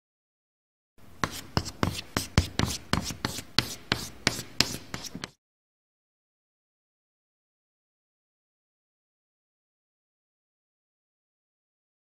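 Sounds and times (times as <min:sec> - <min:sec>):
scratchy drawing strokes: 0:01.2 - 0:05.4.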